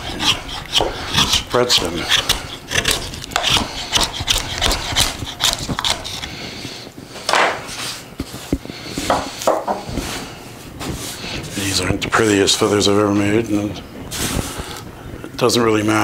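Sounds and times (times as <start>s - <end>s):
knife shaving wooden stick: 0.0s - 6.7s
knife knocking on wooden table: 9.1s - 9.8s.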